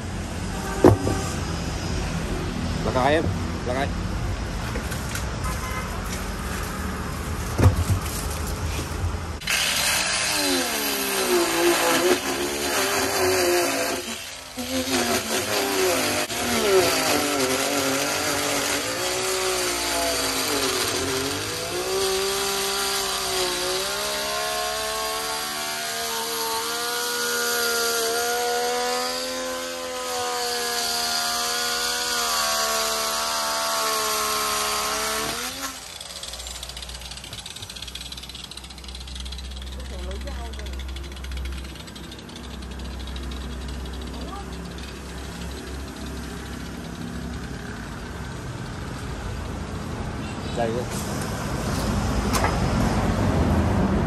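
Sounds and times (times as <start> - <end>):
angle grinder cutting tyre: 0.0 - 49.8
knocks: 0.8 - 1.2.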